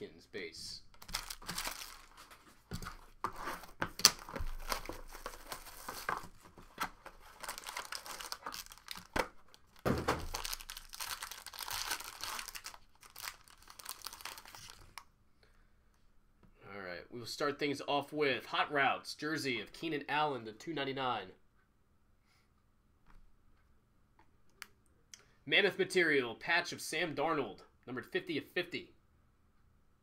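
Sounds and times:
foil pack ripping open: 1.0 - 2.4, 7.0 - 15.0
wrapping crinkling and tearing: 1.0 - 15.0.

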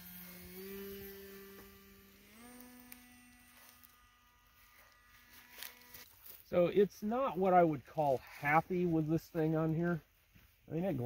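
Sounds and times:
electric motor and propeller whine: 0.0 - 6.4.

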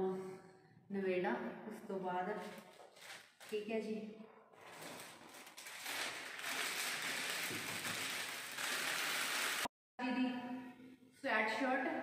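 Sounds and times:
plastic wrapping crackling: 2.4 - 3.8, 4.6 - 9.7.

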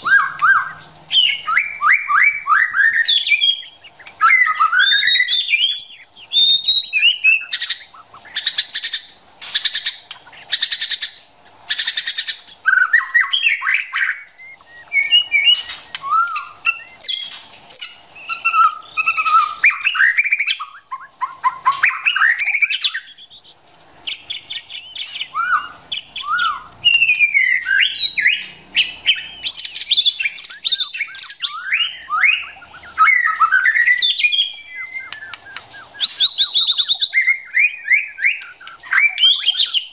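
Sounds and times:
bird whistling gliding phrases: 0.0 - 8.6, 11.9 - 23.6, 24.7 - 39.9
bird harsh chattering: 27.7 - 39.9.

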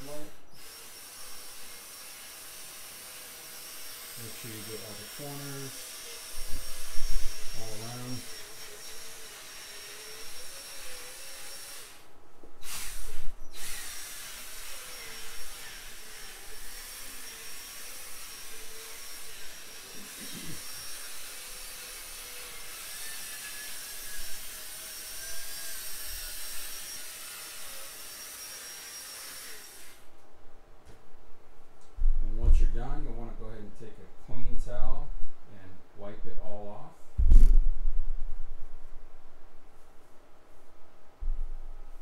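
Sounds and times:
drill motor whine: 0.0 - 12.0, 12.6 - 30.1
buffing pad hissing on lens: 3.7 - 27.1.

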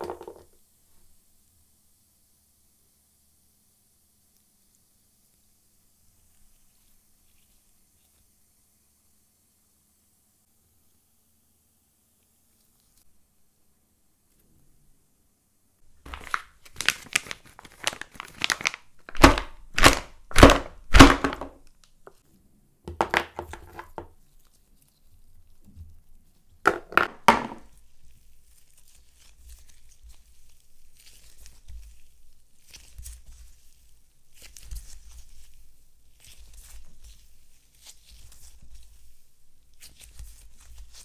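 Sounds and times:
slime crackling: 15.9 - 21.9
slime popping and squelching: 16.0 - 21.8.

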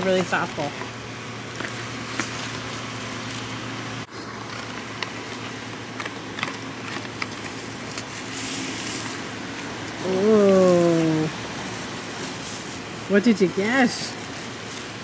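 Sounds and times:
bubble wrap rustling: 0.0 - 15.0
van cabin hum: 0.0 - 15.0
cardboard box clicks and crinkles: 4.1 - 10.0.

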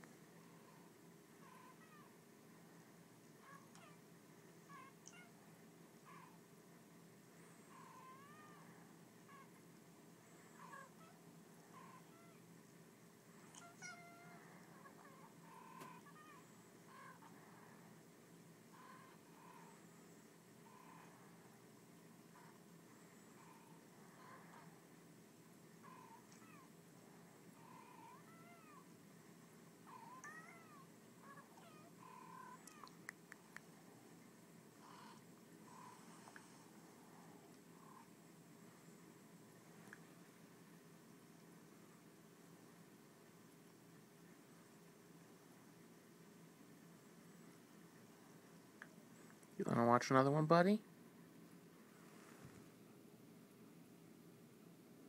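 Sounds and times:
cats meowing through speaker: 13.5 - 16.4, 30.0 - 33.0.

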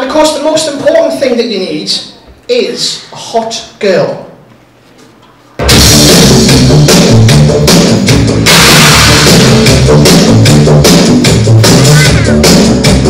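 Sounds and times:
rock music with drums and bass: 5.6 - 13.0.

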